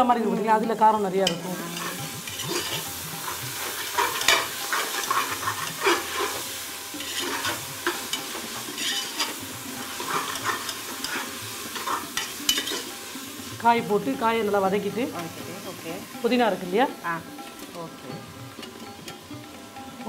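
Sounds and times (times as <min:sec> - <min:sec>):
vegetables sizzling in oil: 0:00.0 - 0:20.0
spoon scraping a pot: 0:01.2 - 0:13.5.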